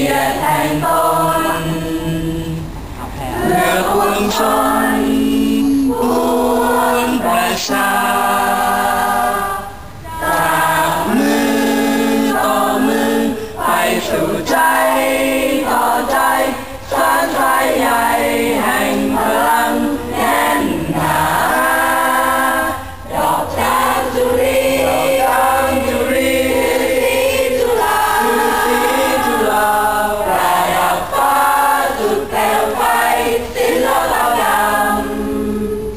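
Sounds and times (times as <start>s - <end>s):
choir singing: 0.0s - 35.9s.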